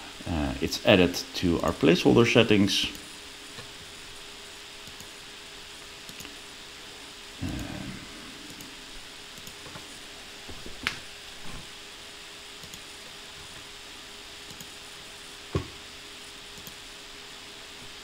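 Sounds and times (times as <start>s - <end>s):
faint hum: 0.0s - 18.0s
microphone hiss: 0.0s - 18.0s
computer mouse clicks: 4.8s - 5.1s, 6.0s - 6.4s, 9.3s - 9.7s, 12.6s - 12.9s, 14.5s - 14.8s, 16.6s - 16.8s.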